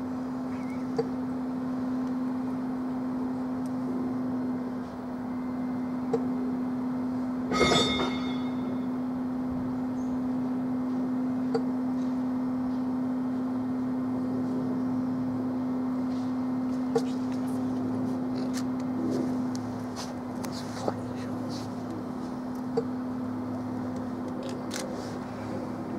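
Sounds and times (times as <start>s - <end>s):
diesel locomotive engine idling: 0.0s - 25.9s.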